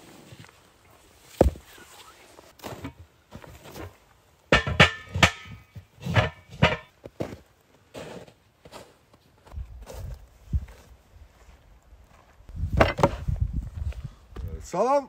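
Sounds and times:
rock knocking: 1.4s - 1.7s
metallic clanks and scrapes: 3.6s - 6.9s.

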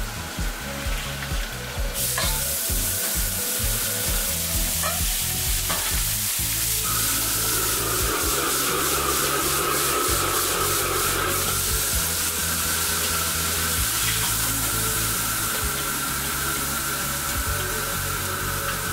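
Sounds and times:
food sizzling in a wok: 0.0s - 18.9s
metal ladle clanking on wok: 2.2s - 2.5s.

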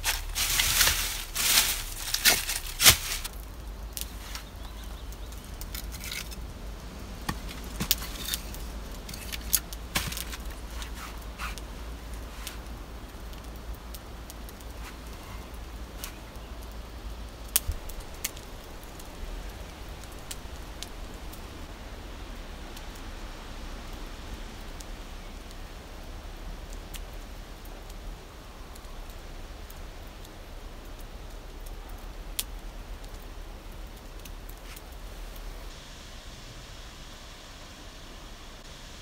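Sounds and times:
sharp fire pops: 0.0s - 6.4s, 7.2s - 16.8s, 17.4s - 21.7s
steady hiss: 0.0s - 39.0s
wood fire crackling: 0.0s - 39.0s.

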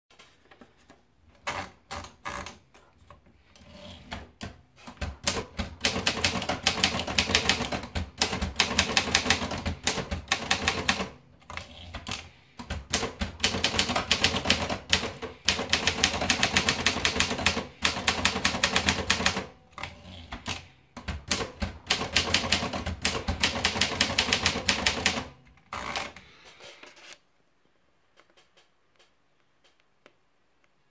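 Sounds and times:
typewriter carriage return: 3.5s - 27.0s.

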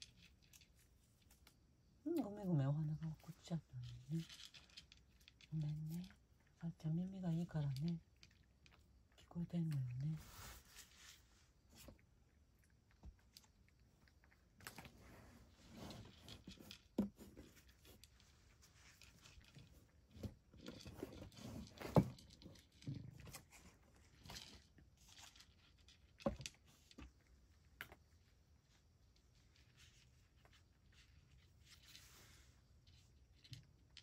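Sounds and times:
cat chewing food in bowl: 3.4s - 25.0s.

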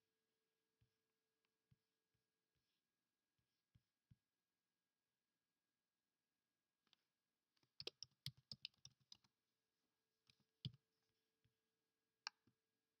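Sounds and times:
keyboard typing: 7.6s - 9.3s.

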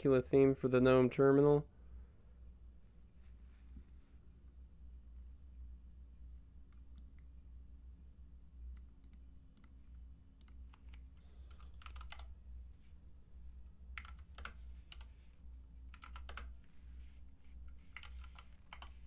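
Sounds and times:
low steady hum: 0.0s - 19.0s
keyboard keys clicking: 10.4s - 12.3s, 14.0s - 15.1s, 15.9s - 16.5s, 18.0s - 18.9s.

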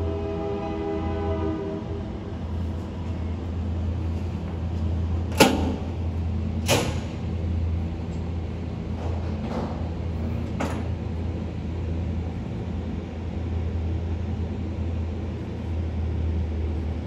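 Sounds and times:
locomotive horn: 0.0s - 2.2s
passing train rumble: 0.0s - 17.0s.

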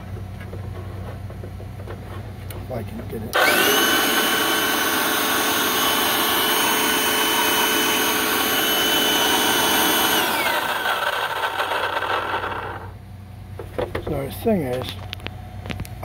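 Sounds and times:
motor winding down: 3.3s - 13.0s
vacuum motor whining: 3.3s - 13.0s.

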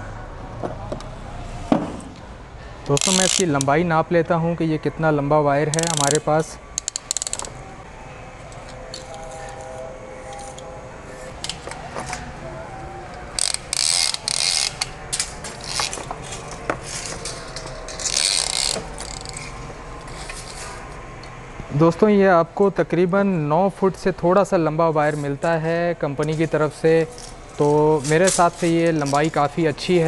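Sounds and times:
tape measure blade rasping: 2.9s - 3.7s, 5.7s - 7.5s, 13.4s - 20.8s
tape measure clicks: 2.9s - 3.7s, 5.7s - 7.5s.

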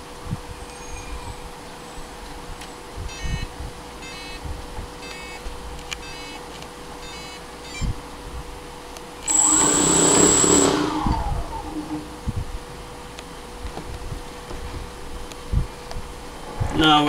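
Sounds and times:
short multi-tone beeps: 3.1s - 4.4s, 5.0s - 5.4s, 7.0s - 7.9s, 9.3s - 12.1s
drone propellers whirring: 9.2s - 13.6s.

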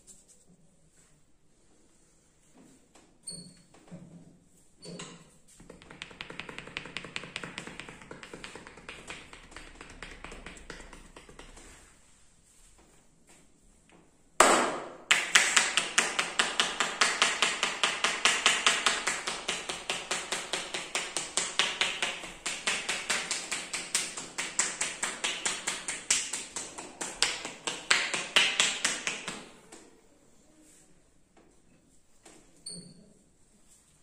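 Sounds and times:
hands tapping on head: 5.6s - 11.9s, 14.4s - 29.6s.

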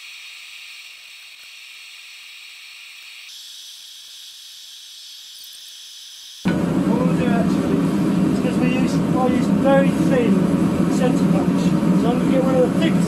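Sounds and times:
steady high hiss: 0.0s - 6.8s.

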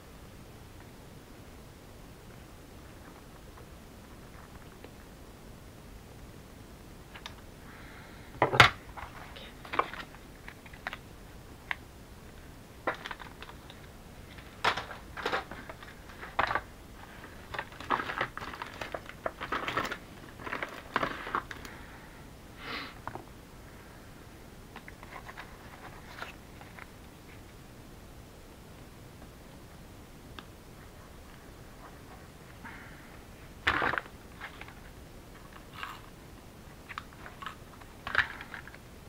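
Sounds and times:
paper rustling: 12.9s - 21.7s.

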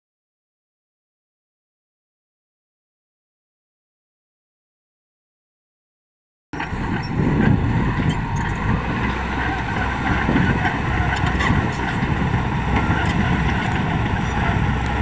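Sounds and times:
bulldozer diesel engine: 6.6s - 15.0s.

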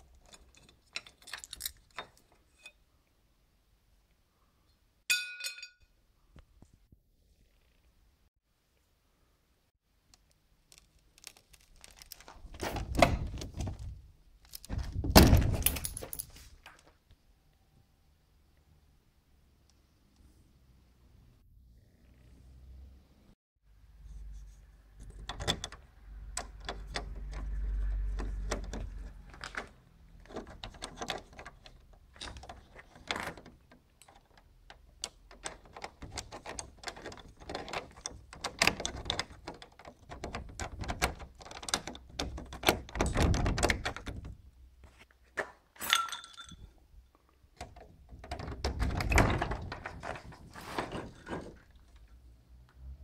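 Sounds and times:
metal rod clicking in door lock: 25.0s - 27.6s, 28.2s - 44.3s, 47.6s - 50.2s.

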